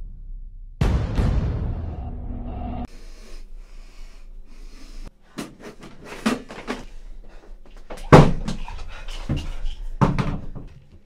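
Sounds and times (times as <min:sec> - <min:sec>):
man breathing heavily: 0:02.9 - 0:08.0.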